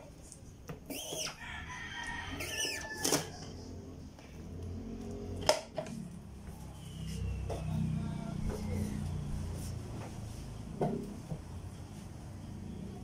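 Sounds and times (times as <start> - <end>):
rooster crowing: 1.2 - 3.9.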